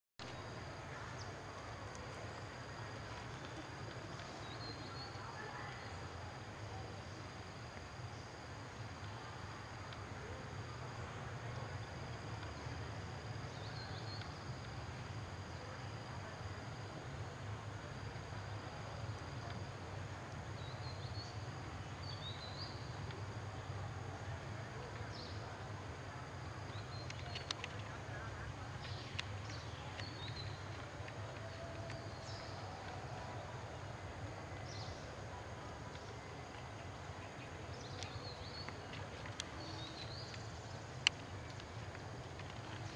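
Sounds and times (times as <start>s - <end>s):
low steady rumble: 0.2s - 42.9s
faint clicks: 9.8s - 10.1s, 13.5s - 15.2s, 26.3s - 33.8s, 34.4s - 42.9s.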